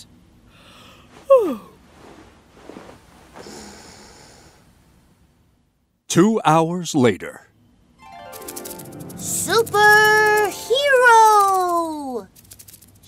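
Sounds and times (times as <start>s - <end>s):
cartoon sleepy sigh: 0.6s - 1.8s
soft breathy snoring: 3.4s - 4.7s.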